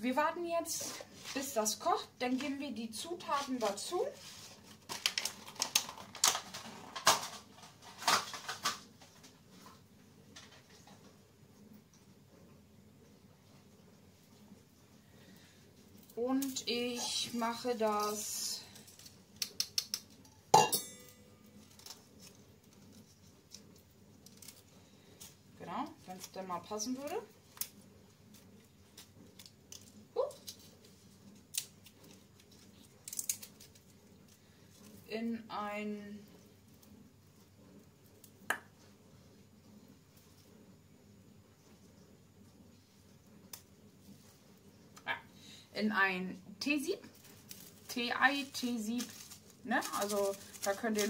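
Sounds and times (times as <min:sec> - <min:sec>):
small hard objects clicking: 0:18.8 - 0:20.3, 0:31.5 - 0:33.9.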